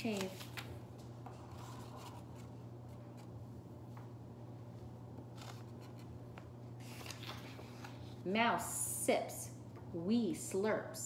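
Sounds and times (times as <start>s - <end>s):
paper rustling and scraping: 0.0s - 3.3s, 5.3s - 6.2s, 6.8s - 8.2s
steady low hum: 0.0s - 11.0s.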